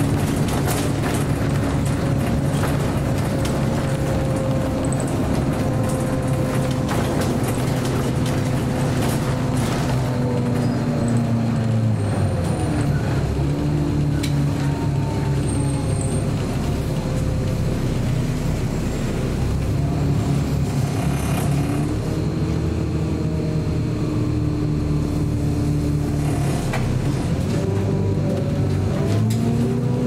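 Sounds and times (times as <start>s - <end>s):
rattles and clicks: 0.0s - 14.6s
bus engine running: 0.0s - 30.0s.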